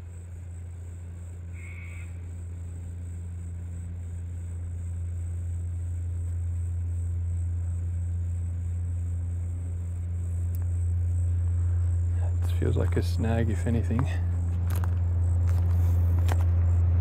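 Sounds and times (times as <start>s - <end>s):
low engine drone: 0.0s - 17.0s.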